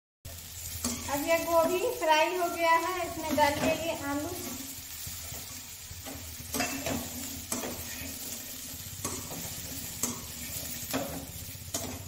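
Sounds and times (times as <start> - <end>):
vegetables sizzling in oil: 0.3 - 12.0
metal spatula scraping pan: 3.2 - 12.0.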